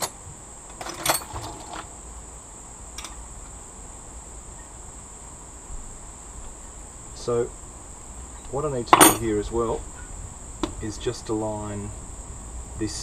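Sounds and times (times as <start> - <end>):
insect chorus: 0.0 - 13.0.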